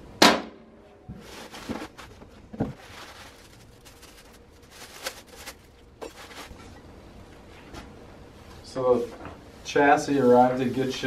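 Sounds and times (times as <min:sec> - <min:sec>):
plastic packaging crinkling: 0:01.2 - 0:06.6.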